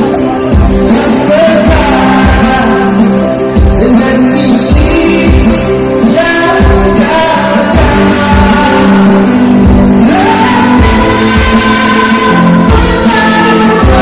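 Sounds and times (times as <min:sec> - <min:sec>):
amplified backing music: 0:00.0 - 0:14.0
choir singing: 0:10.0 - 0:14.0.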